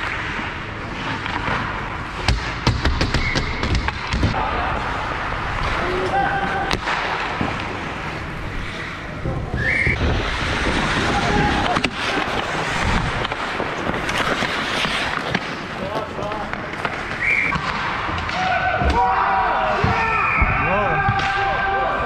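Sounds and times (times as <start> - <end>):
skates scraping ice: 0.0 - 22.0
hockey sticks knocking puck on ice: 1.1 - 4.4, 6.0 - 7.8, 10.1 - 19.1
distant shouts: 18.3 - 22.0.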